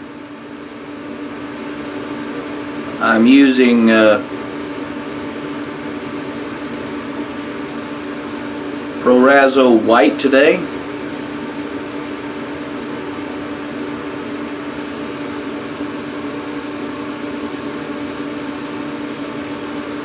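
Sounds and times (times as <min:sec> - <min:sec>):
mechanical hum: 0:00.0 - 0:20.0
razor scraping stubble: 0:01.8 - 0:07.0, 0:10.7 - 0:13.5.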